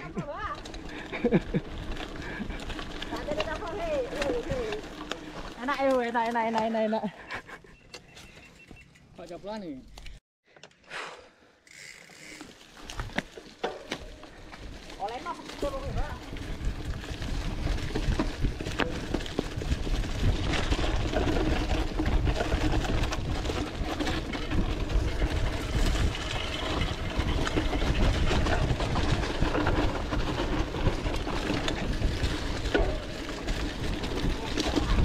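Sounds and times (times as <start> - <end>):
tyres rumbling on dirt: 0.0 - 7.4, 12.4 - 35.0
bike rattling and clicking: 0.0 - 10.2, 11.6 - 35.0
wind on microphone: 15.8 - 32.6.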